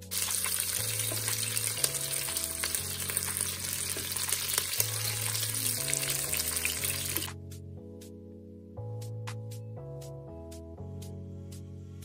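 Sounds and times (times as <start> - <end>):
meat sizzling in oil: 0.0 - 7.3.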